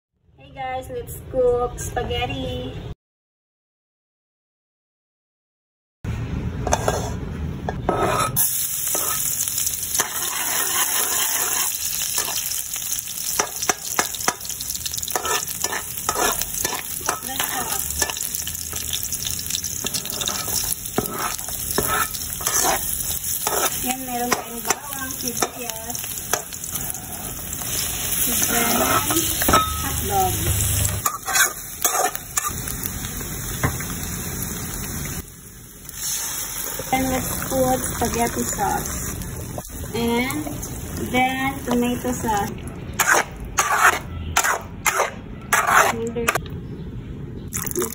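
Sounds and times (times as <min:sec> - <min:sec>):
spatula scraping and clicking wok: 0:06.6 - 0:32.6, 0:43.0 - 0:46.4
garlic and onion sizzling in oil: 0:06.7 - 0:46.4.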